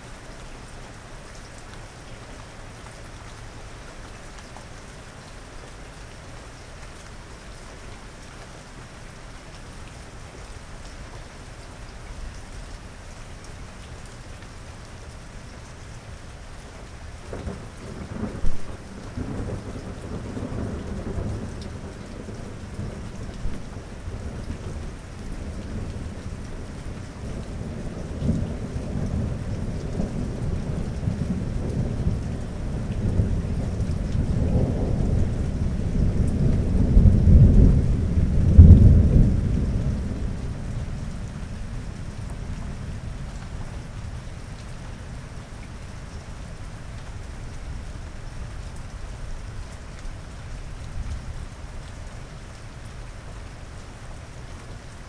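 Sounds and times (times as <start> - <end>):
steady rain: 0.0 - 55.0
thunder crack and rumble: 17.3 - 26.4, 27.6 - 42.2.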